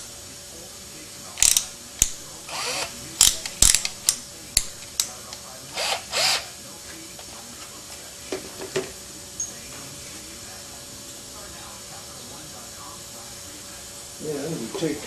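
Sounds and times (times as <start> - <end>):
hand tools clicking: 1.4 - 6.4.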